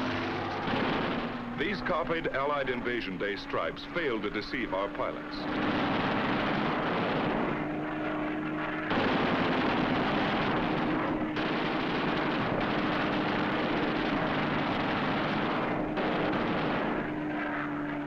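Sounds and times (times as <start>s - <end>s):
fighter plane engine humming: 0.0s - 18.0s
rattling machine-gun fire: 0.3s - 1.6s, 5.4s - 7.7s, 8.8s - 17.3s.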